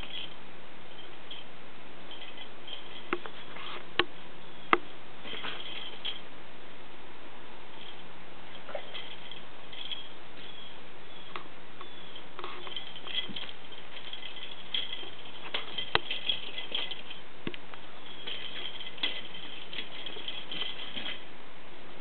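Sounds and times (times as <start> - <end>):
high ringing: 7.7 - 21.3
spring toy rattling and clicking: 11.8 - 17.2, 18.0 - 21.2.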